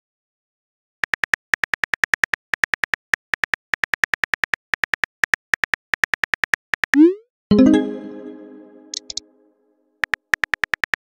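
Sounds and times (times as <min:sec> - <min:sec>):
keyboard typing clicks: 0:08.8 - 0:09.2.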